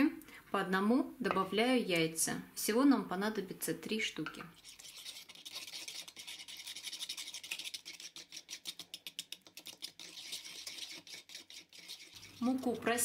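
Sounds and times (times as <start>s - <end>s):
fork beating batter in bowl: 4.2s - 13.0s.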